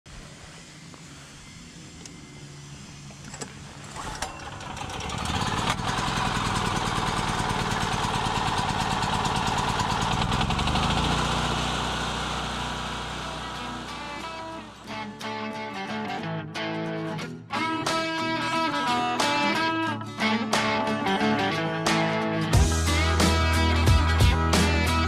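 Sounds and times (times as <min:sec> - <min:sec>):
engine running with rapid pulse: 0:00.1 - 0:15.2
click: 0:02.0 - 0:02.2.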